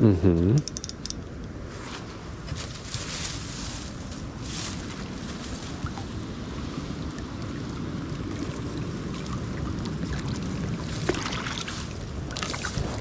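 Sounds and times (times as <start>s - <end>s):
sharp click: 0.6s - 1.2s
wind on microphone: 2.4s - 13.0s
flowing river water: 4.8s - 13.0s.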